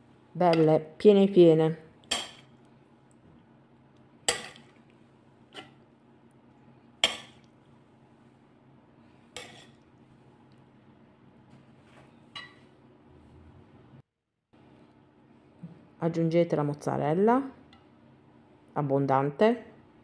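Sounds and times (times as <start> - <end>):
metal spoon clinking on dishes: 2.0 - 2.5, 4.3 - 4.7.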